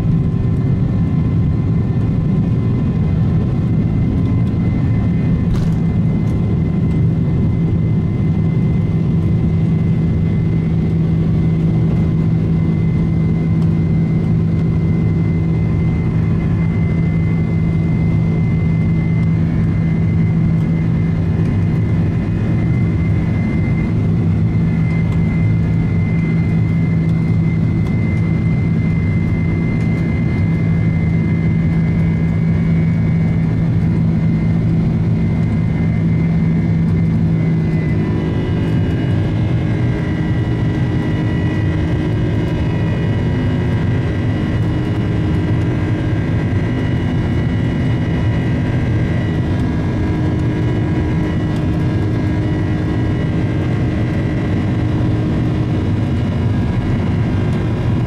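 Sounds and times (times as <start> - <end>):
jet engine drone in cabin: 0.0 - 58.0.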